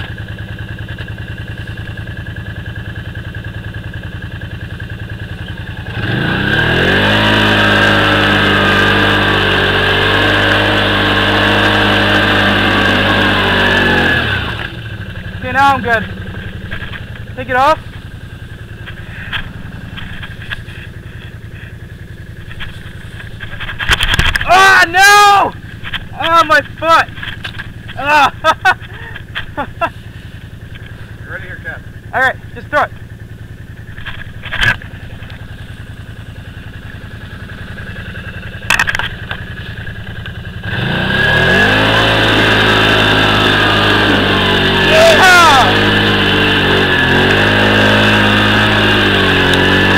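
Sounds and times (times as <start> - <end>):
engine idling: 0.0 - 49.9
clatters: 16.0 - 24.5, 25.6 - 28.0, 33.8 - 40.6
light engine knocks: 38.6 - 40.4.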